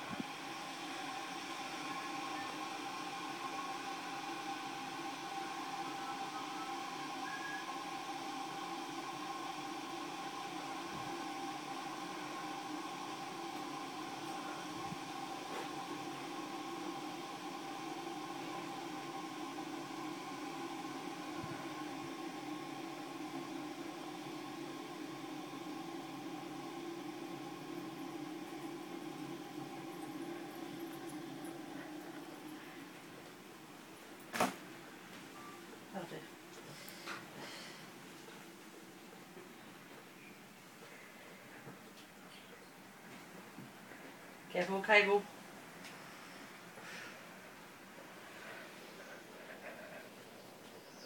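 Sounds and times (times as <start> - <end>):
hiss: 0.0 - 33.1, 45.8 - 50.3
electric motor hum: 0.0 - 34.2.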